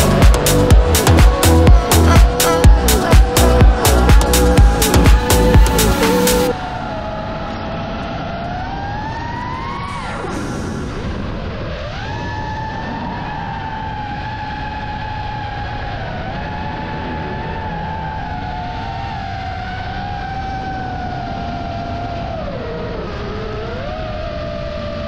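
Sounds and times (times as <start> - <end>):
electronic dance music: 0.0 - 6.5
motor whine: 0.0 - 6.9
rush of air: 9.7 - 14.1.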